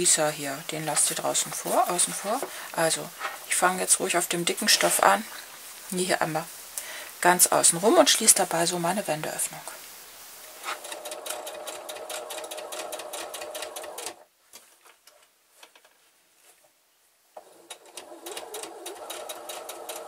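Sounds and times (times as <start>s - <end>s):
electric sewing machine stitching: 10.6s - 14.2s, 17.4s - 20.0s.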